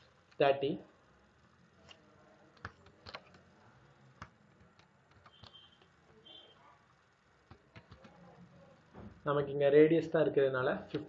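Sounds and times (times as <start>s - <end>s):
computer mouse and keyboard clicks: 1.8s - 3.5s, 4.2s - 5.9s, 7.5s - 8.2s.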